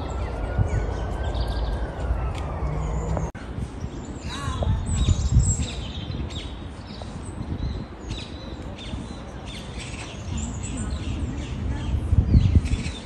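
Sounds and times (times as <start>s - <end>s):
low rumble: 0.0s - 3.9s
small birds chirping: 0.0s - 13.0s.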